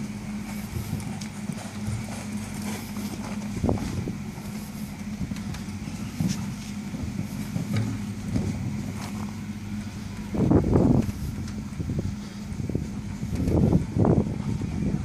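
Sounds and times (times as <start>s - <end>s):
steady low hum: 0.0s - 15.0s
wind rumbling on microphone: 0.0s - 15.0s.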